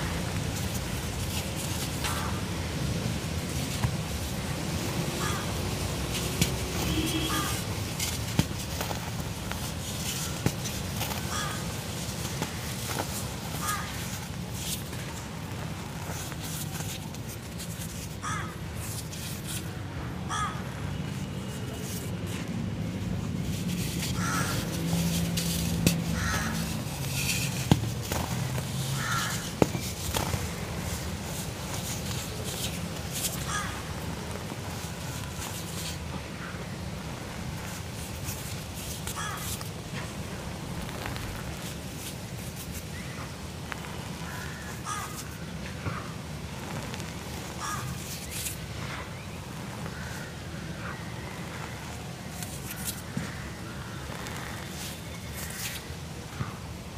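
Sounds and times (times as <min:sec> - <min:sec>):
cement crunching between fingers: 0:23.2 - 0:50.2.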